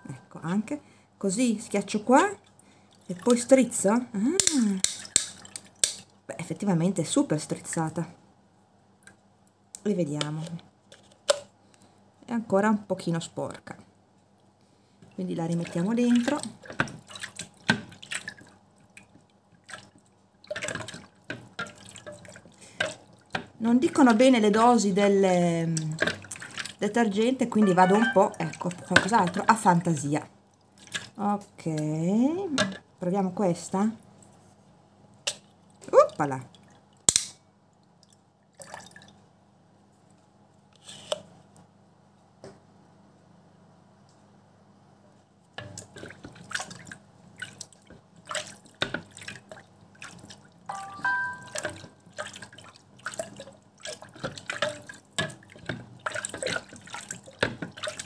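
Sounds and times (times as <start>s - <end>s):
water splashing and dripping: 3.0s - 3.8s, 4.4s - 6.1s, 15.2s - 31.2s, 35.3s - 39.2s, 45.6s - 58.0s.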